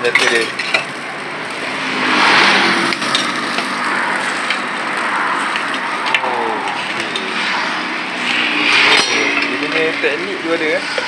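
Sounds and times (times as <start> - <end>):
metal tongs and spatula scraping: 0.0 - 1.7
burger patties sizzling: 0.0 - 11.0.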